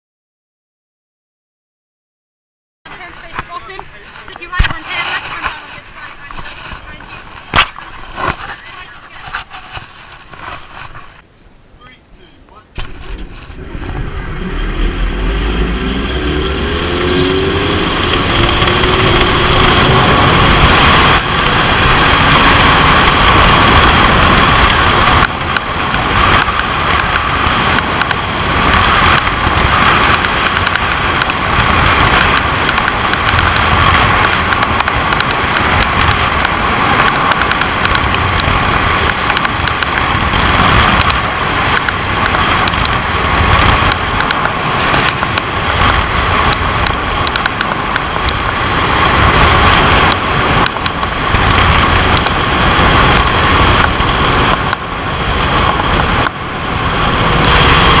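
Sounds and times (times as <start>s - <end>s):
wind buffeting microphone: 2.9s - 11.2s, 12.7s - 58.0s
zip line trolley whirring: 13.0s - 58.0s.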